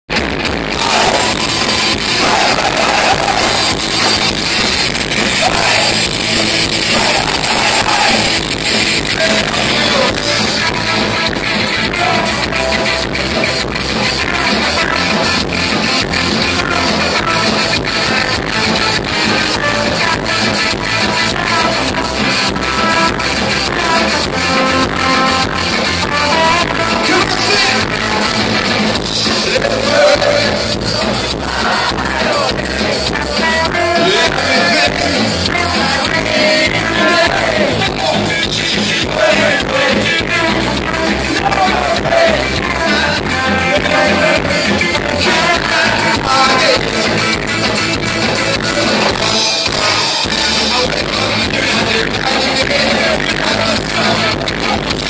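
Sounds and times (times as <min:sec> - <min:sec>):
drums with steady beat: 0:00.1 - 0:55.0
electric guitars: 0:00.1 - 0:55.0
punk rock band playing live: 0:00.1 - 0:55.0
person singing: 0:00.7 - 0:04.6, 0:05.2 - 0:55.0.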